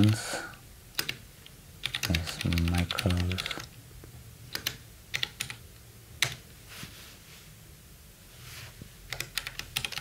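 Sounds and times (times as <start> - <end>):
computer keyboard keystrokes: 0.9 - 1.2, 1.8 - 3.7, 4.5 - 5.6, 6.2 - 6.4, 9.1 - 10.0.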